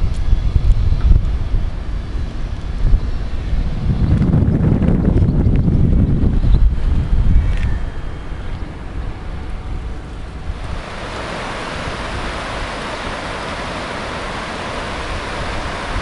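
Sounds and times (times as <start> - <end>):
wind on microphone: 0.0 - 16.0
river water over rapids: 9.9 - 16.0.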